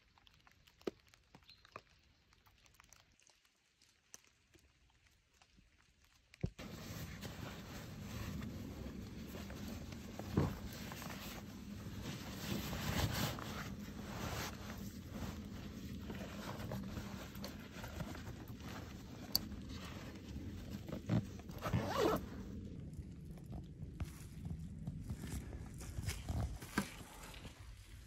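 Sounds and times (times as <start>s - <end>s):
zipper being pulled: 6.6s - 18.9s, 20.9s - 22.4s
fabric rustling: 6.6s - 22.3s.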